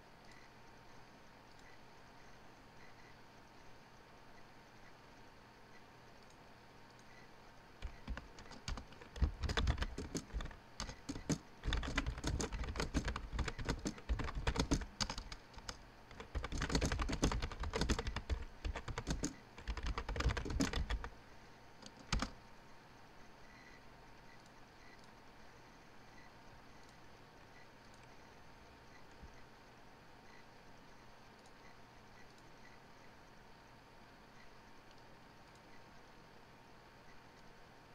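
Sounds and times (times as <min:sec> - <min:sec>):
typing on computer keyboard: 0:07.8 - 0:21.1, 0:21.8 - 0:22.4.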